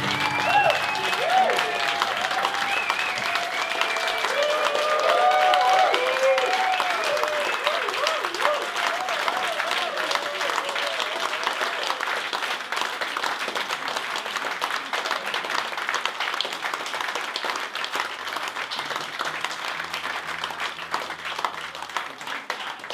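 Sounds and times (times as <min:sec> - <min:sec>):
audience applauding: 0:00.0 - 0:22.9.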